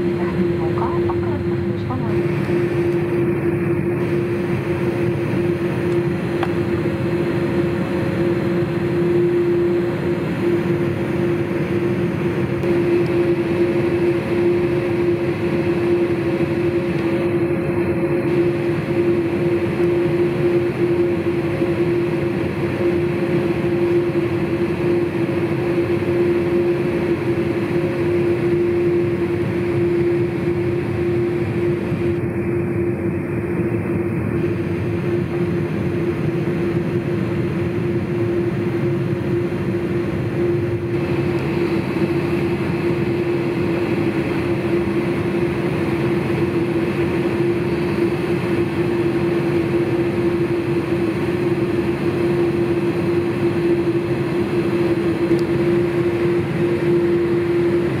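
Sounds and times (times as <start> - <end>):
aircraft cabin hum: 0.0 - 58.0.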